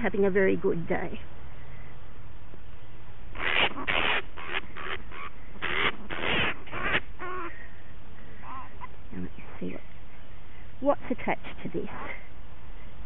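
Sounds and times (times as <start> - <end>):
bat screeching: 3.4 - 7.5.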